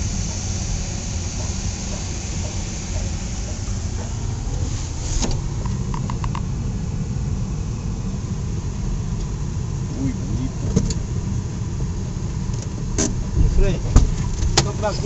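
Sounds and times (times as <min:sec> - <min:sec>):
car engine and road rumble: 0:00.0 - 0:15.0.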